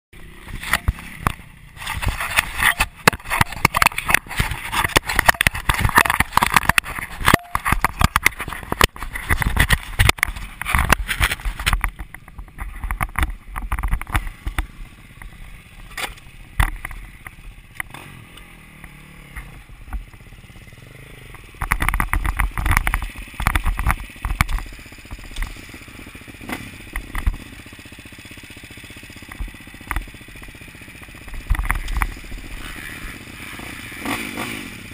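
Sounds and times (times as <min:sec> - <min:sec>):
camera handling knocks and scrapes: 0:01.8 - 0:14.3.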